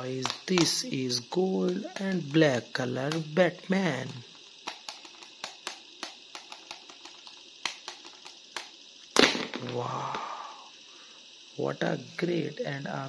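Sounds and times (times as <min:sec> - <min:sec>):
plastic toy clicks and taps: 0:00.2 - 0:00.9, 0:01.6 - 0:03.4, 0:04.0 - 0:08.8.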